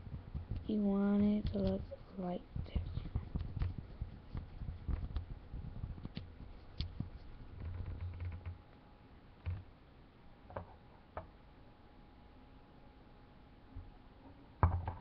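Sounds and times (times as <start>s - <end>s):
low rumbling handling noise: 0.0s - 8.6s
small objects tapping on wooden table: 14.6s - 15.0s.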